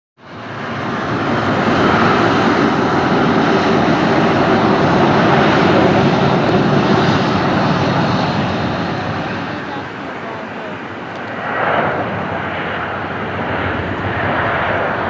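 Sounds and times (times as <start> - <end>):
jet engines running: 0.2 - 15.0.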